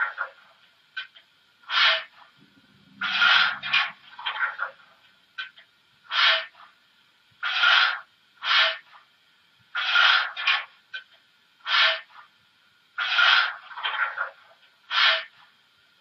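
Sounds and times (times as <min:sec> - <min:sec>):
hissing steam puffs: 0:01.6 - 0:05.0, 0:06.0 - 0:06.7, 0:07.4 - 0:09.0, 0:09.7 - 0:10.7, 0:11.6 - 0:12.2, 0:13.0 - 0:14.0, 0:14.9 - 0:15.5.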